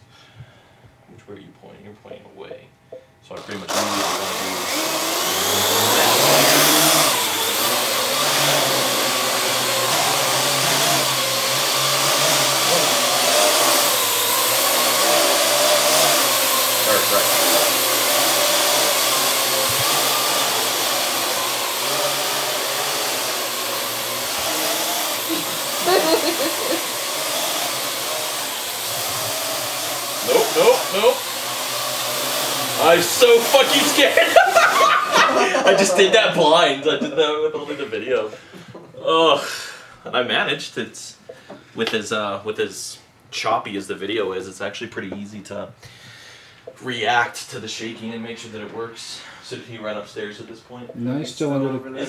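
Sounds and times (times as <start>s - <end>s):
drone propellers whining: 3.5s - 35.2s
quadcopter rotors whirring: 3.5s - 36.0s.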